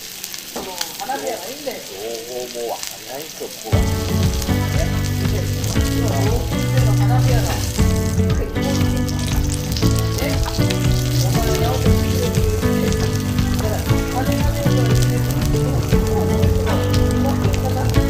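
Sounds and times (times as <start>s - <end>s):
meat sizzling on a grill: 0.0s - 18.0s
murmuring voices: 0.6s - 18.0s
musical tones: 3.7s - 18.0s.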